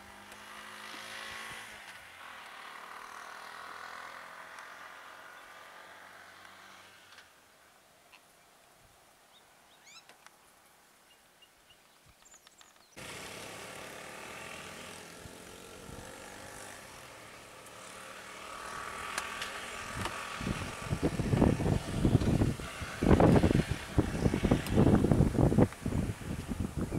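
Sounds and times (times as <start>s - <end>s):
passing motorbikes engine noise: 0.0s - 7.4s, 13.0s - 26.9s
faint bird chirps: 9.3s - 13.0s
wind buffeting microphone: 19.8s - 26.9s.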